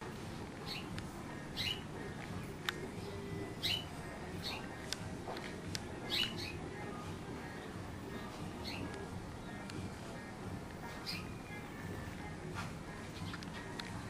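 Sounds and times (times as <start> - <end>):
steady background noise: 0.0 - 14.0
small bird chirping: 0.6 - 4.8, 6.0 - 9.7, 10.8 - 11.8.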